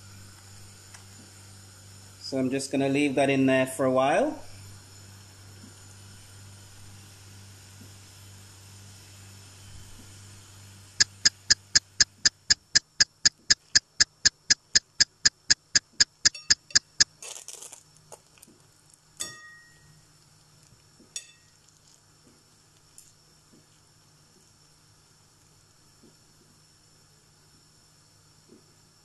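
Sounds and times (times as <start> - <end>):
low hum: 9.5 - 17.1
rapid clock ticking: 11.0 - 17.1.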